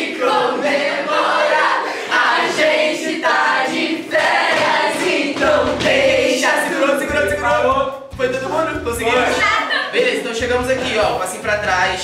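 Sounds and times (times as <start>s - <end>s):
group singing a pop song: 0.0s - 7.9s
bass beat: 4.6s - 12.0s.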